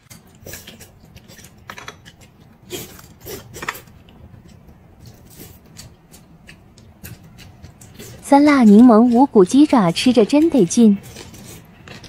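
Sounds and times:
person chewing and smacking: 0:00.0 - 0:09.3, 0:11.0 - 0:12.0.

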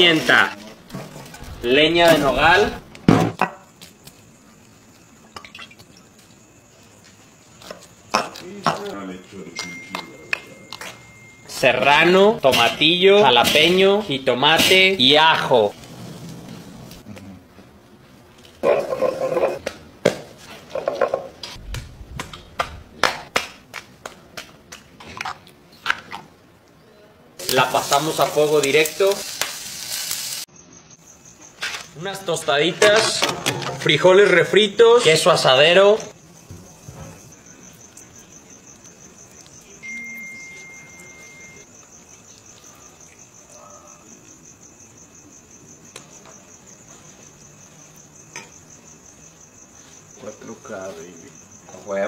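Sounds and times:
crickets chirping: 0:00.0 - 0:17.0, 0:25.6 - 0:52.0
steady high tone: 0:09.4 - 0:12.4, 0:39.8 - 0:41.7.

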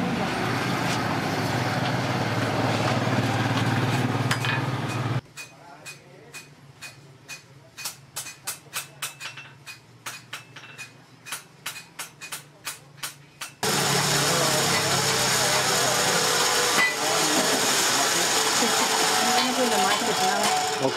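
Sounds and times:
road traffic noise: 0:00.0 - 0:05.2, 0:13.6 - 0:20.9.

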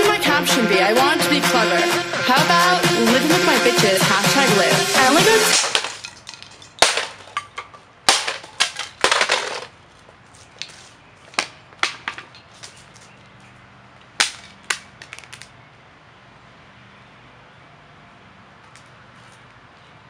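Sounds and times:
bat smashing boombox: 0:04.6 - 0:09.7.

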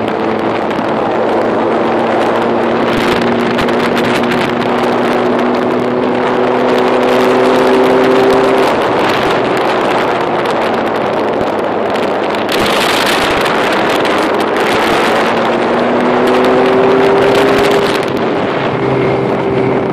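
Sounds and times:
motorcycle engine hum: 0:00.0 - 0:19.9
wind rushing over microphone: 0:00.0 - 0:19.9.

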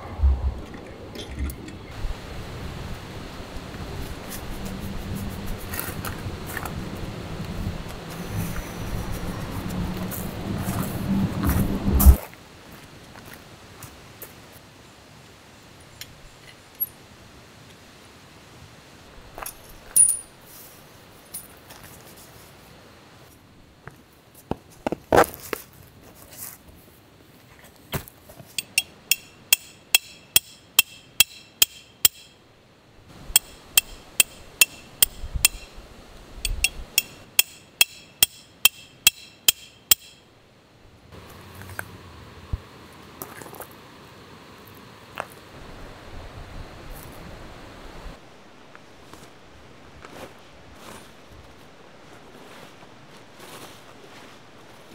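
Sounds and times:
hammer striking metal tent stakes: 0:28.6 - 0:32.4, 0:33.4 - 0:35.7, 0:36.5 - 0:40.3.

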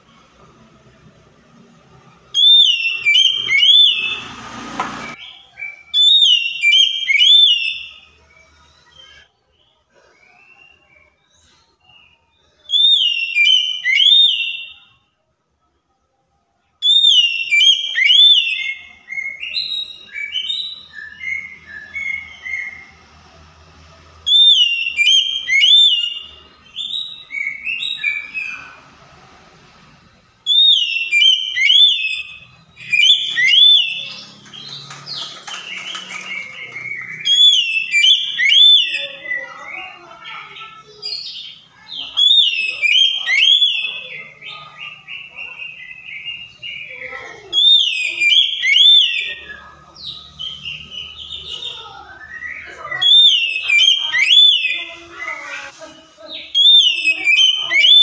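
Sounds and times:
bird singing whistled phrases: 0:02.4 - 0:04.4, 0:05.1 - 0:08.1, 0:11.8 - 0:14.9, 0:16.8 - 0:22.9, 0:24.3 - 0:28.8, 0:30.4 - 0:49.7, 0:50.3 - 0:55.4, 0:56.4 - 0:58.0.

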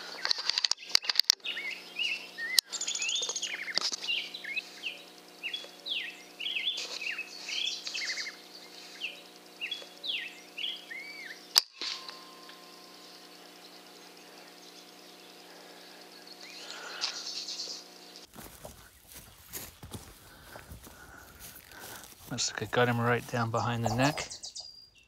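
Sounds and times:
small birds chirping: 0:00.0 - 0:25.0
sharp clicks: 0:00.2 - 0:01.4.

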